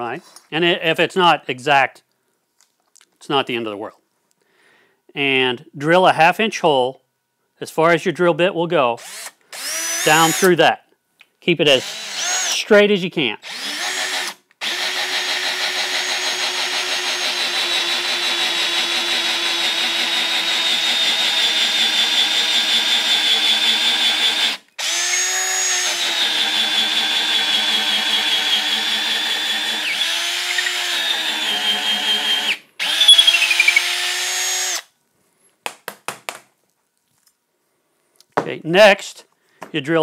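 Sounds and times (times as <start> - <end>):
drill boring into wood: 9.0 - 10.5, 11.8 - 12.7, 13.4 - 34.9.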